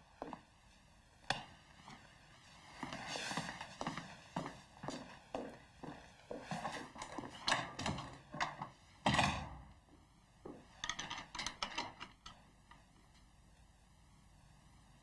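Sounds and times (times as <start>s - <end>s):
footsteps walking away: 0.2s - 0.6s, 1.5s - 8.7s, 10.4s - 10.8s
door shutting with a thud: 9.0s - 9.7s.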